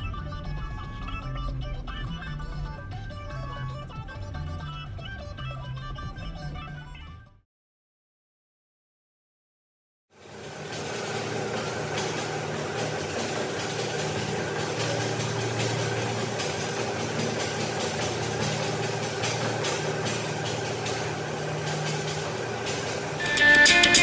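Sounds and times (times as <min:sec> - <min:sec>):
running footsteps on treadmill: 0:10.2 - 0:24.0
treadmill motor and belt hum: 0:10.2 - 0:24.0.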